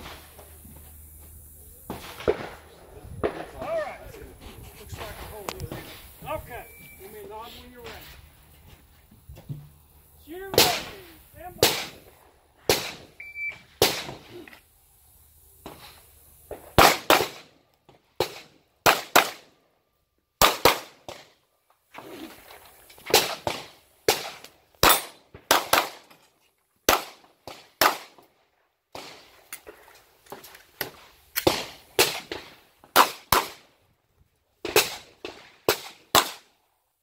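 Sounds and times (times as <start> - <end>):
shot timer beep: 13.2 - 13.6
handgun shots: 23.1 - 26.1, 33.0 - 33.6, 35.7 - 36.4.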